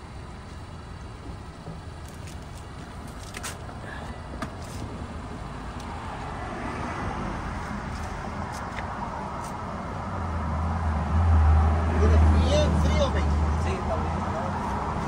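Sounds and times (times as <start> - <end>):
vehicle engine running: 0.0 - 6.6
outdoor traffic noise: 0.0 - 15.0.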